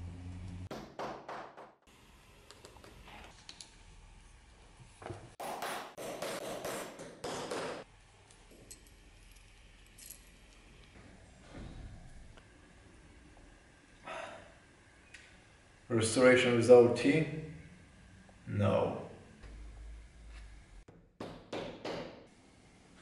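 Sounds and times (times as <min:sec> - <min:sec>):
light metal clinking: 0:08.2 - 0:10.8.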